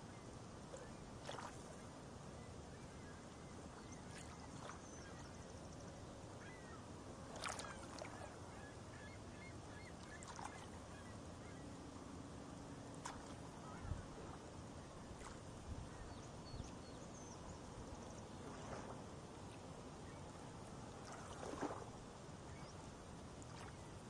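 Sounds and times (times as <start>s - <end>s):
water splashes: 0.7s - 1.9s, 7.3s - 8.4s, 10.0s - 10.8s, 13.0s - 14.5s, 18.4s - 19.0s, 20.9s - 22.7s, 23.4s - 24.0s.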